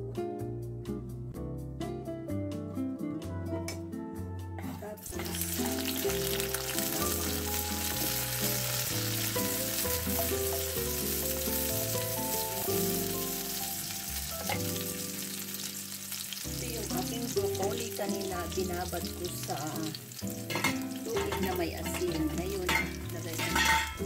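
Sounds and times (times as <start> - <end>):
background music of held notes: 0.0 - 24.0
garlic sizzling in hot oil: 5.0 - 24.0.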